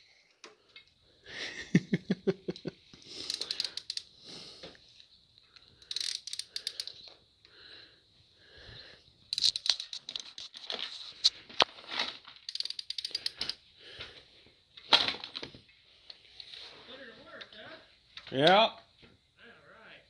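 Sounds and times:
ratchet wrench clicking: 3.2s - 4.1s, 5.8s - 7.0s, 9.3s - 10.5s, 12.5s - 13.6s.

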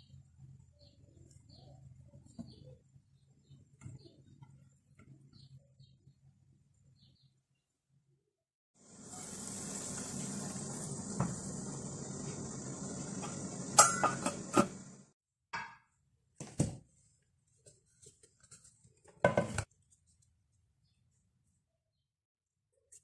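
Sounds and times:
steam hissing: 8.8s - 15.1s
metal pot clanking: 13.2s - 14.9s.

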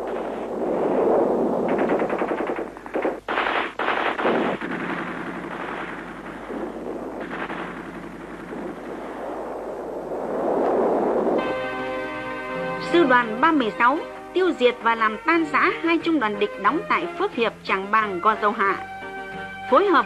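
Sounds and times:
automatic machine-gun fire: 1.7s - 9.6s.

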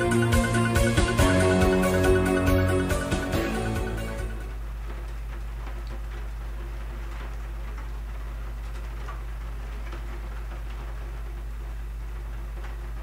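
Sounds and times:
steady low hum: 0.0s - 13.0s
faint ticks and clicks: 4.9s - 13.0s.

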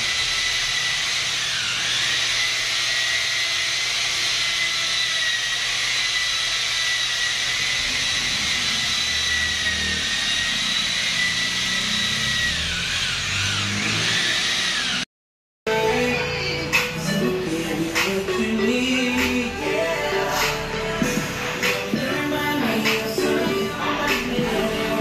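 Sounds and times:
electric polisher whining: 0.0s - 15.1s.

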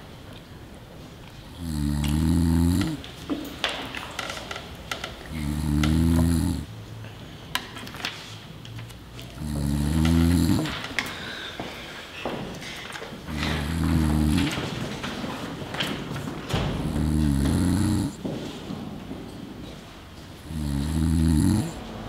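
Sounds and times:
person snoring: 1.5s - 3.0s, 5.3s - 6.7s, 9.4s - 10.8s, 13.3s - 14.6s, 16.8s - 18.2s, 20.4s - 21.8s.

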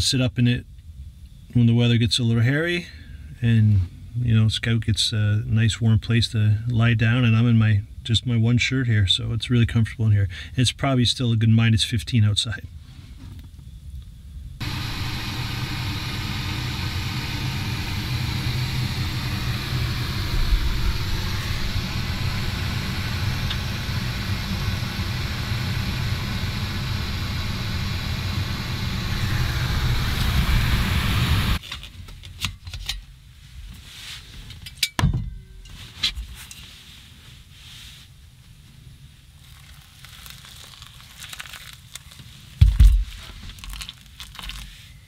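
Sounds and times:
gas stove flame rushing: 14.6s - 31.6s.

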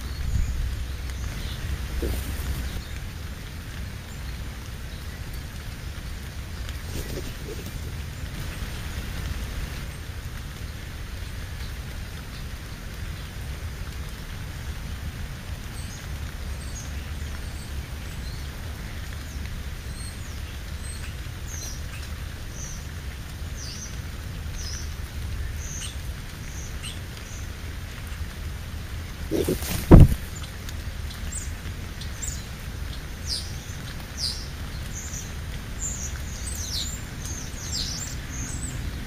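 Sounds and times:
small birds chirping: 0.0s - 3.2s, 3.9s - 9.0s, 28.9s - 39.0s
outdoor hiss with low rumble: 0.0s - 39.0s.

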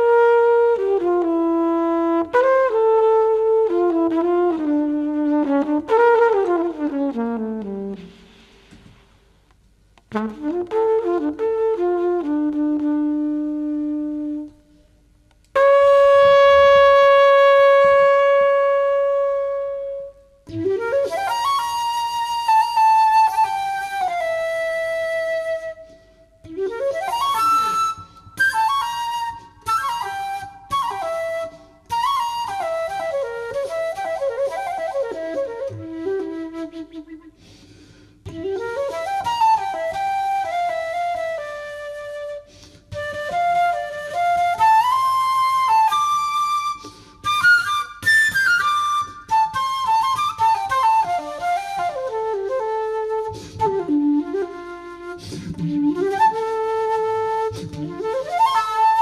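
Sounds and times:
flugelhorn held low note: 15.6s - 20.7s
flute playing solo: 15.6s - 59.0s.

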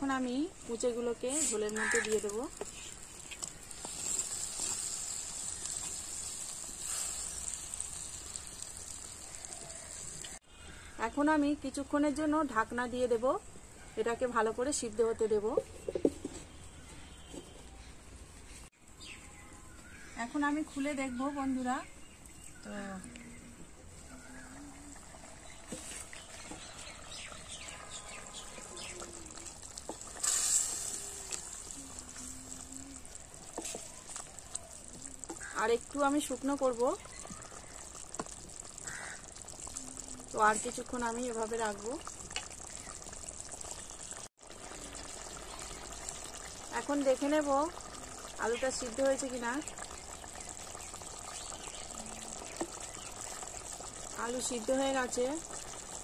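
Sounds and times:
gravy boiling with a hiss: 0.0s - 10.8s, 20.3s - 56.0s
curry bubbling in pot: 0.2s - 10.4s, 23.2s - 56.0s
wooden spatula stirring: 0.8s - 10.1s, 25.5s - 27.0s, 28.4s - 39.7s.

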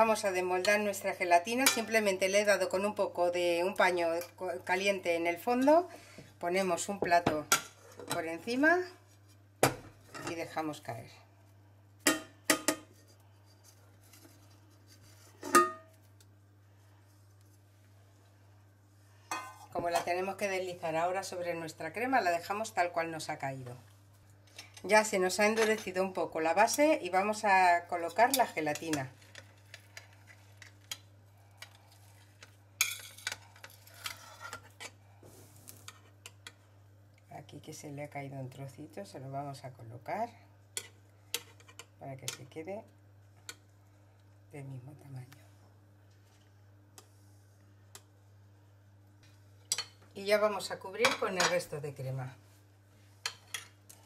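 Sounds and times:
metal spatula scraping ceramic plate: 32.8s - 34.9s.

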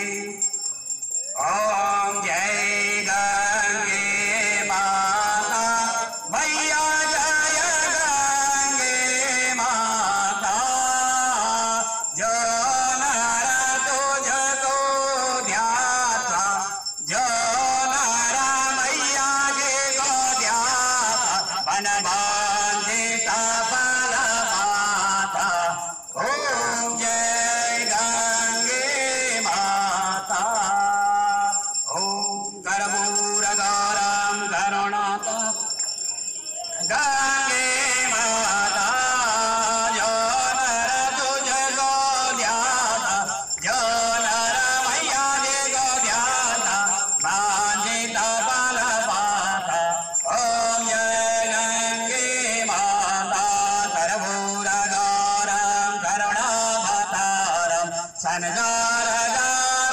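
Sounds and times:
bells ringing: 0.0s - 59.9s
men singing devotional chant: 0.0s - 59.9s
person singing a hymn: 17.1s - 30.2s.

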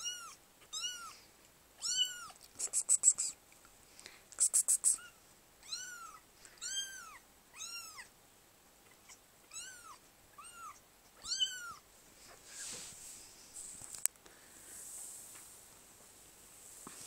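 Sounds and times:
kitten mewing: 1.8s - 3.4s, 4.4s - 8.1s
soft rustle: 11.9s - 17.0s.

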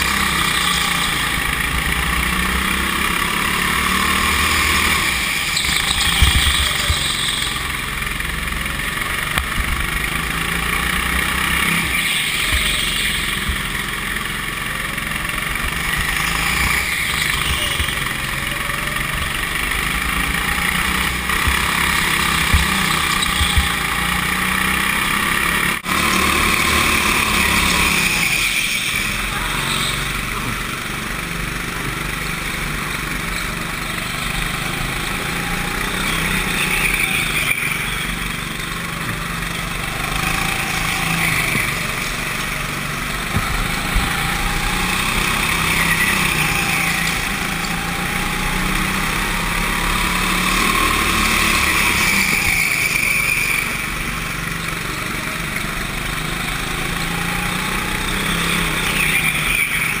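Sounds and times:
go-kart engine running: 0.0s - 60.0s.

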